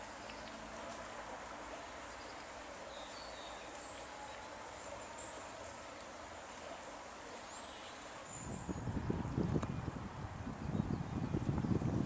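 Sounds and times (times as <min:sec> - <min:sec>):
flowing river water: 0:00.0 - 0:12.0.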